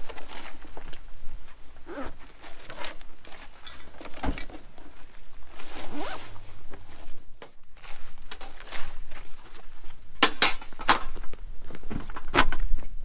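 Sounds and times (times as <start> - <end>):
zipper being pulled: 1.8 - 2.8, 5.4 - 6.4.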